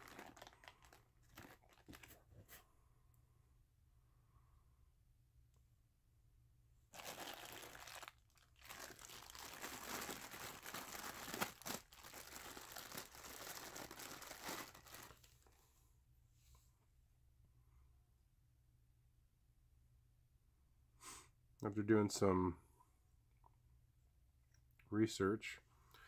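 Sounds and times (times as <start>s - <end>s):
plastic packaging crinkling: 0.0s - 2.3s, 6.9s - 15.5s.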